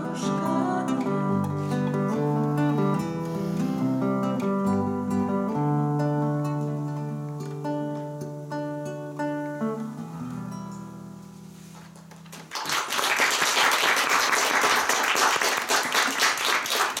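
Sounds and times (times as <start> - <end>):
acoustic guitar: 0.0 - 12.5
audience applause: 12.3 - 17.0.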